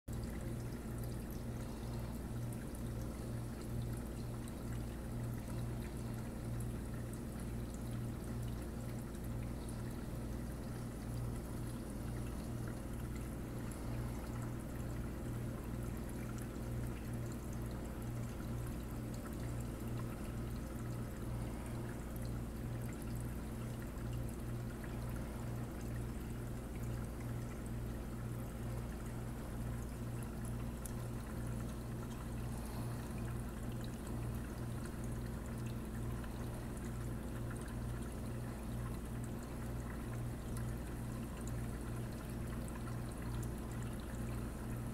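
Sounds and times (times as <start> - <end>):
pulsing pump hum: 0.1 - 44.9
water trickling and pouring: 0.1 - 44.9.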